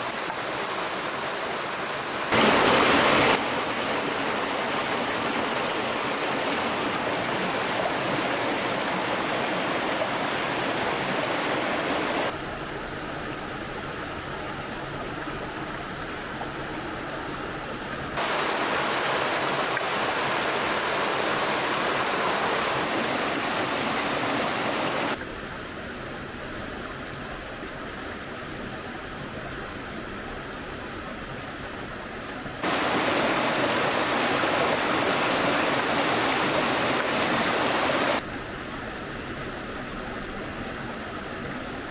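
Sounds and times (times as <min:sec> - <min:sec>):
stream rushing: 0:00.0 - 0:41.9.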